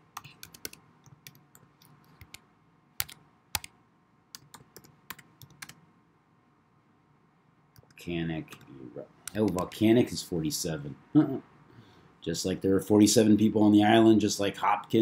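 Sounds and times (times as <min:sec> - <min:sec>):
computer keyboard typing: 0:00.2 - 0:02.4, 0:03.0 - 0:05.8, 0:07.8 - 0:09.7.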